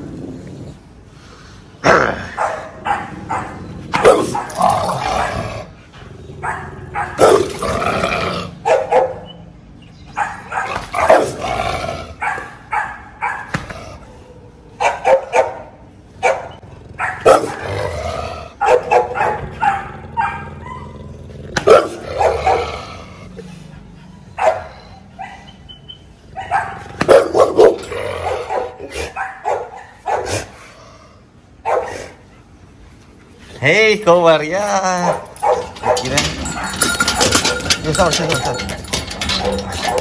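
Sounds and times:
large dog barking: 2.3 - 9.3, 10.1 - 23.4, 24.2 - 25.6, 26.3 - 30.5, 31.6 - 32.3, 34.9 - 37.7, 38.4 - 40.0.

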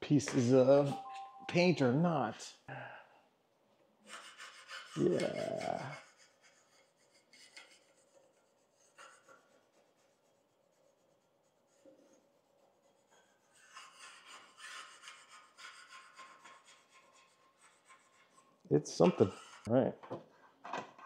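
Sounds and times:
faint rubbing strokes on table: 4.1 - 18.5.

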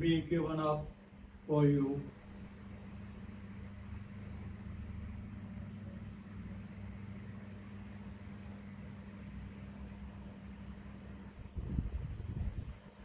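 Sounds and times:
low droning electrical hum: 0.0 - 13.0.

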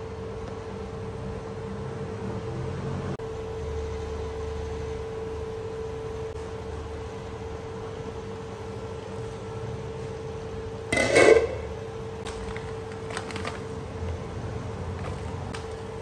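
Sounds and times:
induction cooktop hum: 0.0 - 16.0
glass lid clattering: 10.9 - 11.7.

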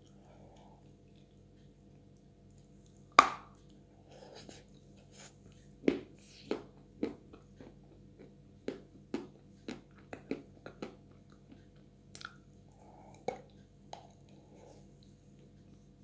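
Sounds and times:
chewing clicks: 6.6 - 14.4.

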